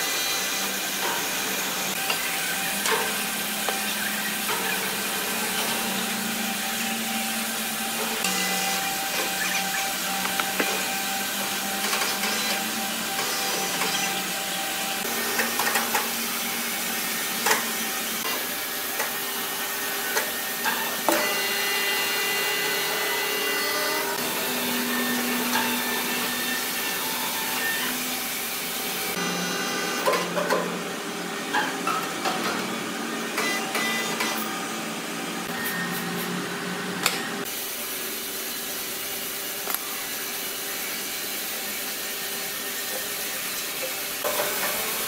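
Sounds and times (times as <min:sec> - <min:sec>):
sawmill machinery whirring: 0:00.0 - 0:31.5.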